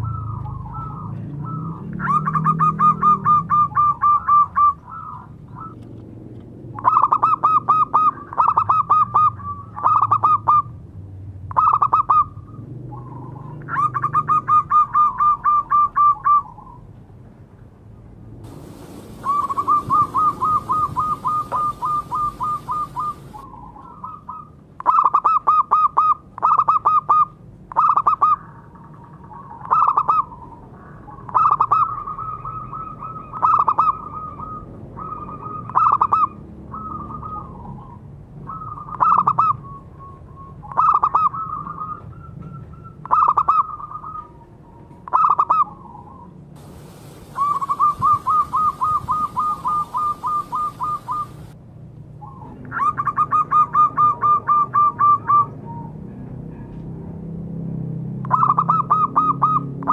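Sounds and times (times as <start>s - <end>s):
dove cooing: 0.0s - 5.8s, 6.8s - 10.7s, 18.5s - 51.6s, 52.2s - 56.7s.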